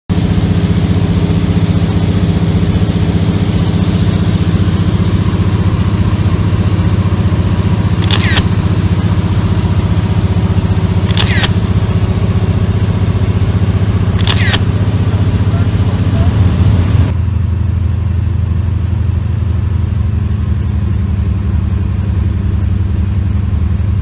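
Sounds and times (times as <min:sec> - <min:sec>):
propeller plane engine droning: 0:00.1 - 0:24.0
camera shutter clicks: 0:08.0 - 0:08.5, 0:11.1 - 0:11.6, 0:14.2 - 0:14.7.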